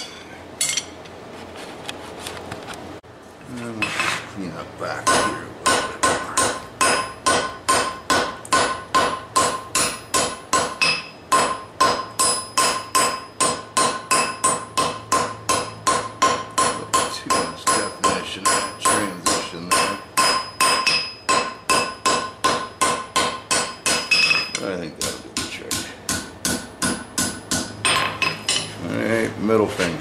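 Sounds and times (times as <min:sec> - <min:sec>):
hammer striking hot metal on anvil: 0:05.0 - 0:28.8.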